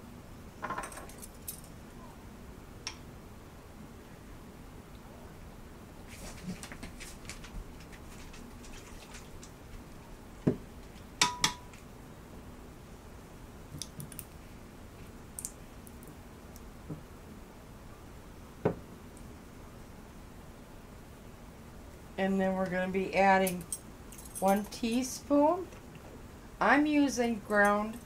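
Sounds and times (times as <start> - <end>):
metal and glass clinks: 23.4 - 24.7.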